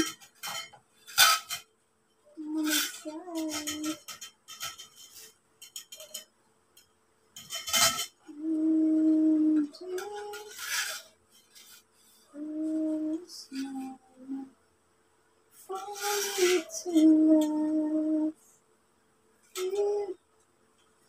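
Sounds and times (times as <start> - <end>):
woman humming: 2.3 - 4.1, 8.2 - 10.6, 12.3 - 14.5, 15.6 - 18.4, 19.6 - 20.2
metal tubes clinking: 2.6 - 6.3, 7.4 - 8.2.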